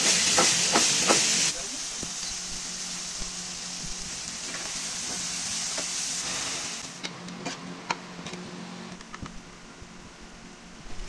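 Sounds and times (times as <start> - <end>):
vegetables sizzling in a frying pan: 0.0 - 7.0.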